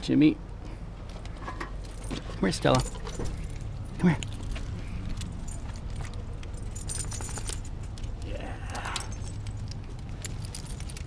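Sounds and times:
steady low rumble: 0:00.0 - 0:11.0
small metal pieces jingling: 0:01.8 - 0:11.0.

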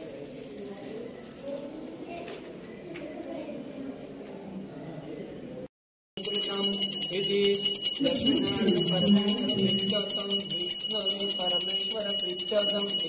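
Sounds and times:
bells ringing rapidly: 0:06.2 - 0:13.0
voices singing or chanting: 0:06.2 - 0:13.0.

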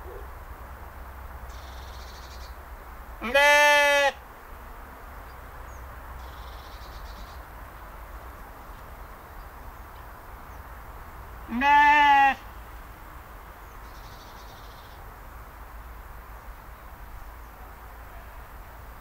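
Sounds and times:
sheep bleating: 0:03.2 - 0:04.2, 0:11.5 - 0:12.4, 0:18.1 - 0:18.5.

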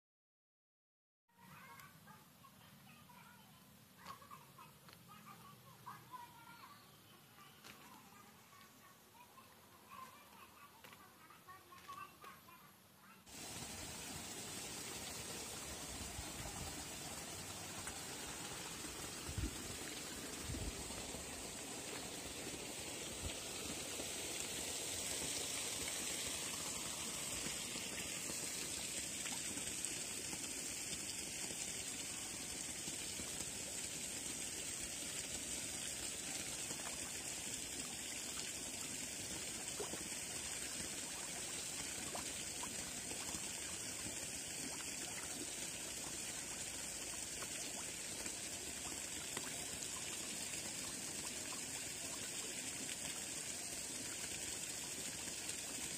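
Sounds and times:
water trickling into pond: 0:13.3 - 0:55.9.

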